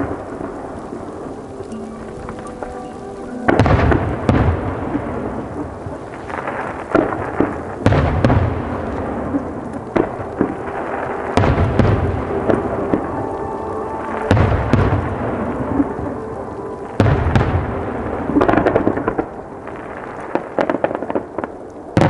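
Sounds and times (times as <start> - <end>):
echoing rumble: 0.0 - 22.0
firework shells booming: 3.4 - 13.1.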